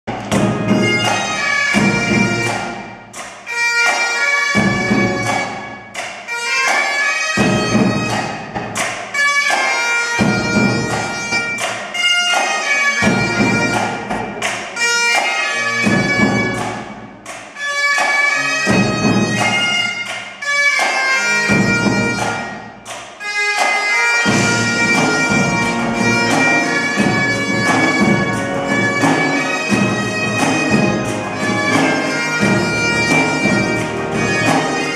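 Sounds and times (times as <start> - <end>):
snare drums: 0.1 - 34.9
bagpipe playing a tune: 0.4 - 8.5, 9.2 - 16.8, 17.6 - 34.9
bass drum: 24.3 - 34.8
pipe organ: 24.3 - 34.9.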